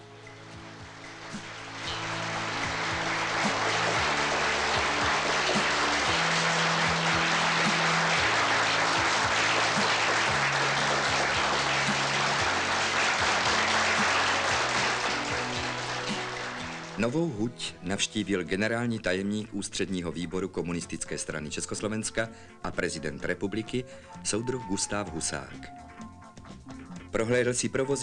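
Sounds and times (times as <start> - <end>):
large audience applauding: 0.0 - 17.6.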